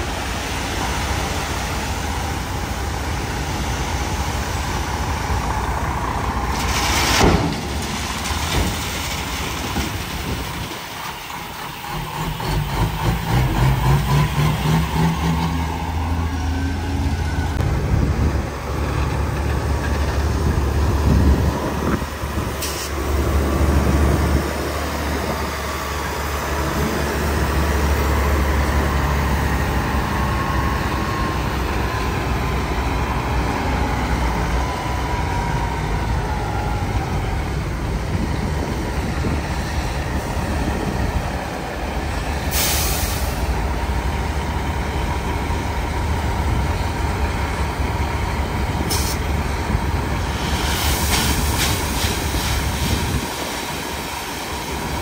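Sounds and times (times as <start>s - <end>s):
diesel truck engines running: 0.0s - 55.0s
truck accelerating away: 0.0s - 55.0s
air hiss: 42.5s - 43.5s, 50.3s - 54.4s.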